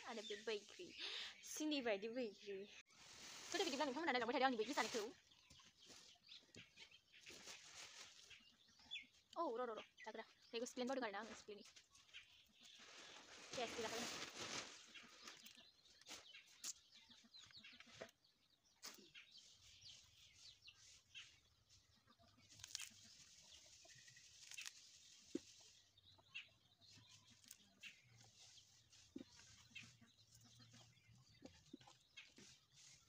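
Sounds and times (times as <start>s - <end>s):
chickens clucking: 14.5s - 19.3s, 25.2s - 33.0s
fruit being handled and cut: 17.8s - 33.0s.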